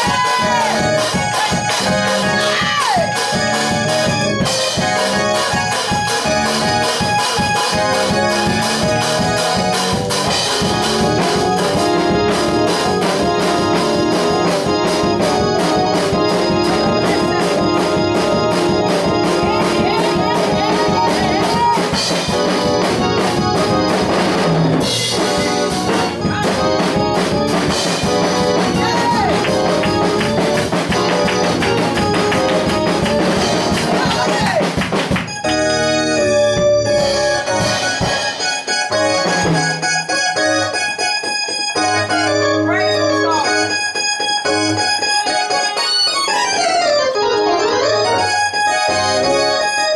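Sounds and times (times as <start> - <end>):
steady drum beat: 0.0 - 35.6, 36.4 - 39.9
electronic keyboard music: 0.0 - 49.9.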